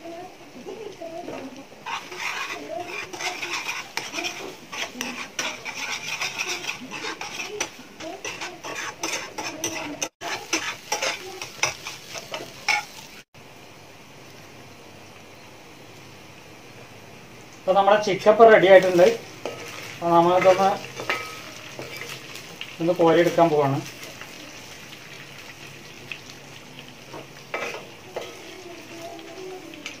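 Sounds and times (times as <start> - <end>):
oil sizzling: 0.0 - 30.0
metal spoon scraping frying pan: 1.3 - 13.1, 18.8 - 22.4, 27.1 - 28.6.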